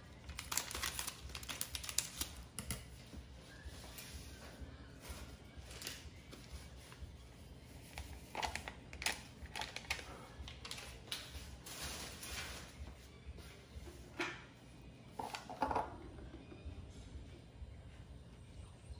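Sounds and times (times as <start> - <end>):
plastic sachet crinkling: 0.1 - 2.9, 7.9 - 12.7.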